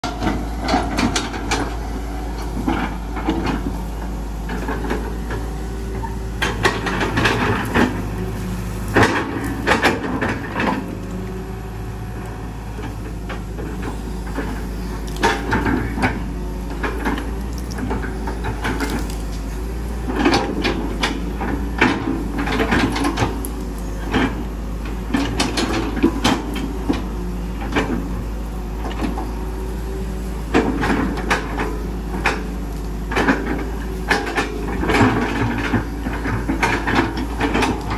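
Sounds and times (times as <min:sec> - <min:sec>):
excavator bucket knocks and clanks: 0:00.0 - 0:01.8, 0:06.3 - 0:08.1, 0:08.9 - 0:10.9, 0:20.0 - 0:23.4, 0:30.4 - 0:37.9
excavator diesel engine running: 0:00.0 - 0:37.9.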